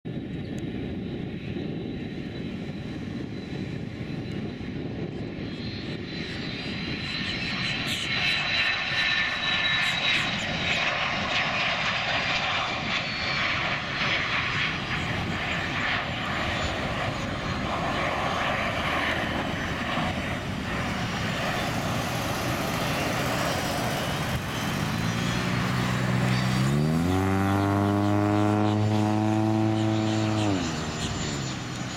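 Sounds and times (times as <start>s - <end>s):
jet engine roar with whine: 0.1s - 31.9s
deep rising hum: 20.3s - 31.8s.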